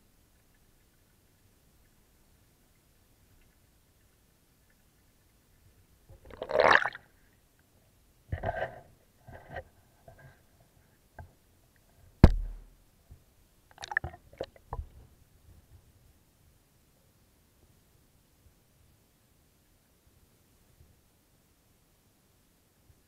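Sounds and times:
water splashing and sloshing: 4.6s - 7.3s
sharp knock with deep thud: 12.2s - 12.7s.

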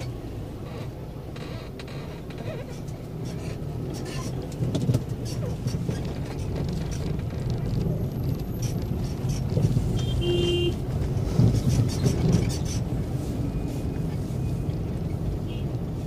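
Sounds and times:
engine and road rumble: 0.0s - 16.0s
car horn beep: 10.0s - 10.8s, 15.4s - 15.8s.

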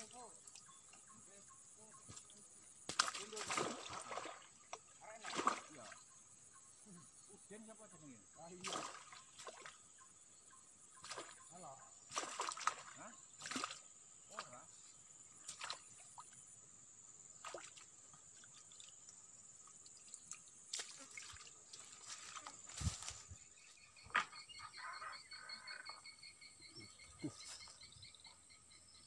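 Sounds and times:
animal calling in rapid pulses: 24.3s - 26.1s.

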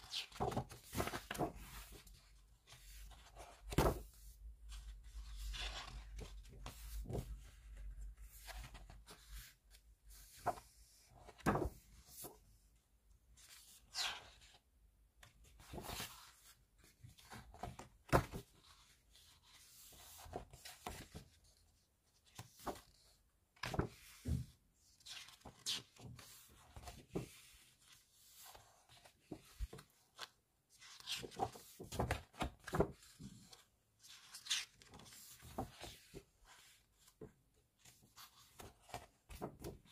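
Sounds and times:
book pages turning: 0.0s - 12.4s, 25.0s - 37.2s, 37.8s - 39.9s.

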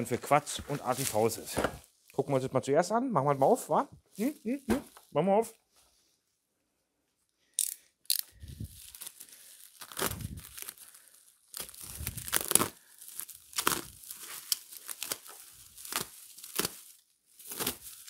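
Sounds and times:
packaging ripping and crinkling: 8.1s - 18.0s.

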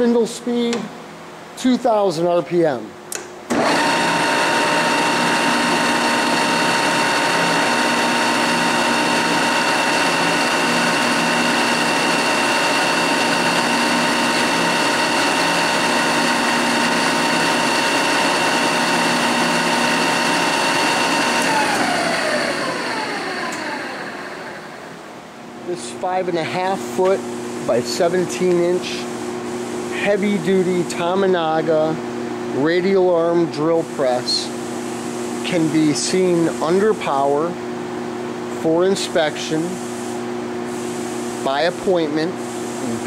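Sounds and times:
drill press spindle whine: 3.5s - 25.0s.

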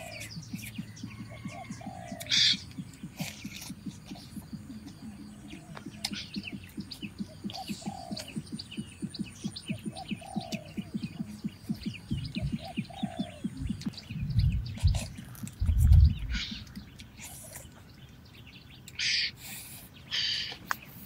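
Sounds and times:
fast low pulsing: 0.0s - 16.8s
birds chirping: 0.0s - 21.0s.

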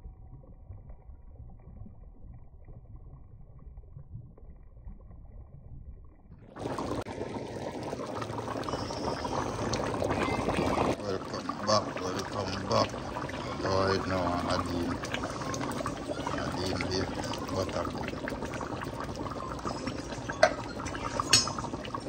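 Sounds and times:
stew boiling and bubbling: 0.0s - 22.0s.

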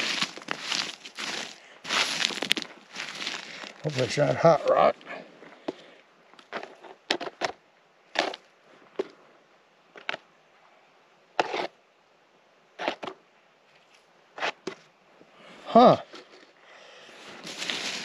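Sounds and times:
digging tool striking gravelly ground: 0.0s - 5.0s, 6.4s - 8.5s
rustling and crinkling: 0.0s - 9.3s, 16.0s - 18.0s.

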